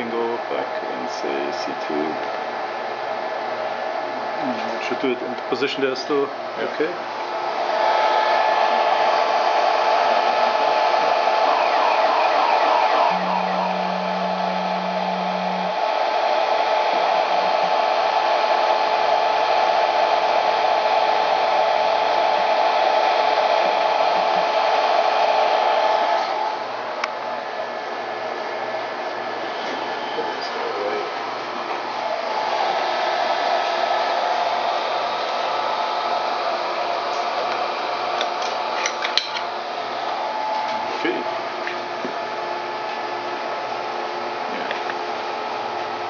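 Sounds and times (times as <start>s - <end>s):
whirring machine noise: 0.0s - 46.0s
low motor tone: 11.6s - 15.9s.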